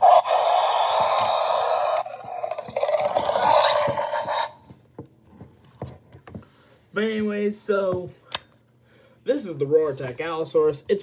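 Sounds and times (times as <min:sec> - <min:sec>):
toy dinosaur roar from speaker: 0:00.0 - 0:04.6.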